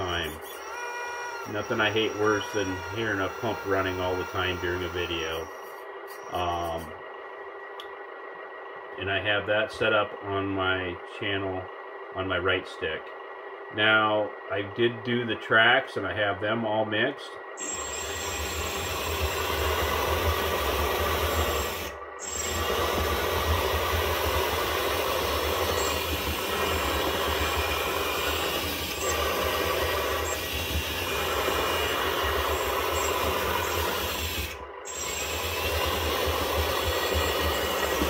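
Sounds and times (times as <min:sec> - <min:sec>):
track drive motors whirring: 0:00.0 - 0:09.0, 0:17.4 - 0:38.0
simulated diesel engine rumble from speaker: 0:01.4 - 0:07.0.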